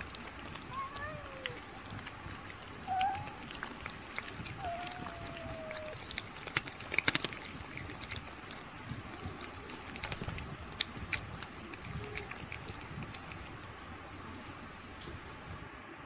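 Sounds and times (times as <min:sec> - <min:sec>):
kitten licking and chewing: 0:00.0 - 0:15.6.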